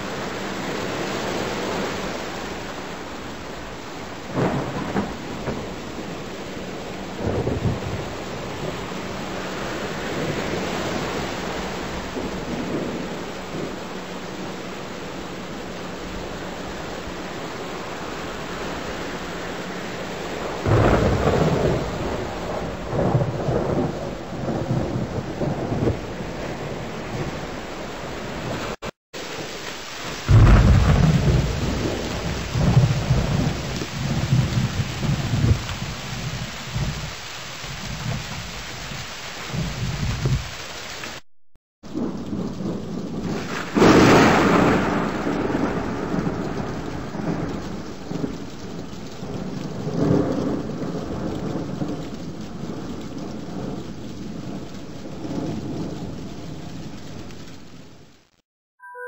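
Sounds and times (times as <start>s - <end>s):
rolling thunder: 0.0s - 14.6s, 15.3s - 40.6s, 41.8s - 58.2s
heavy rain: 0.0s - 41.2s, 41.8s - 58.4s.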